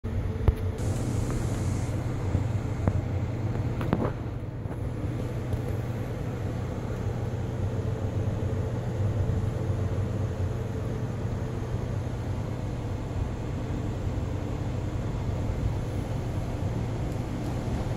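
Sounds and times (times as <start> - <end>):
rainstorm rumble and hiss: 0.8 - 3.1.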